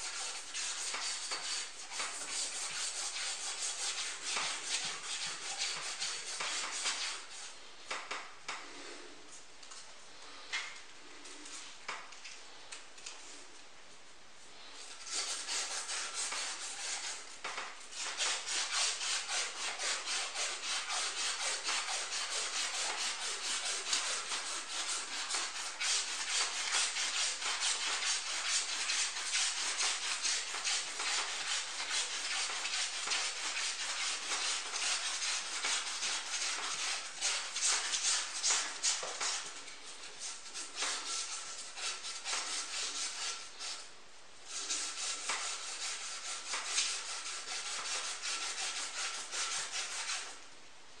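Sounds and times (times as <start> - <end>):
metal rod rubbed by hand: 0.0 - 7.6, 14.7 - 43.9, 44.5 - 50.4.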